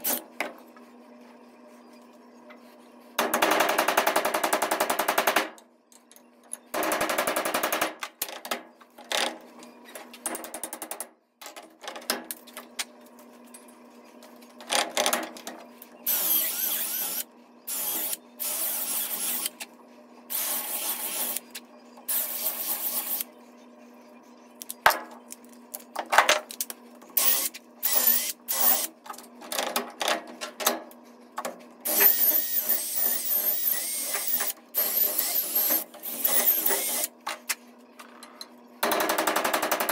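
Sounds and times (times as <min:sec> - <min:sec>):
cordless drill boring wood: 0:16.1 - 0:19.5, 0:27.2 - 0:28.9, 0:31.9 - 0:37.1.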